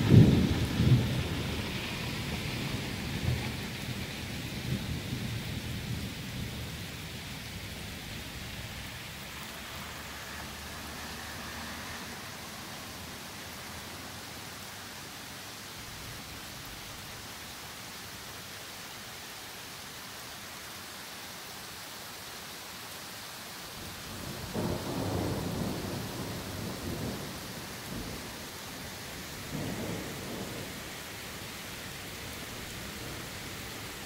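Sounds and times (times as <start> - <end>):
thunder rumbling: 0.0 - 8.8, 24.1 - 34.0
rain falling on trees: 0.0 - 34.0.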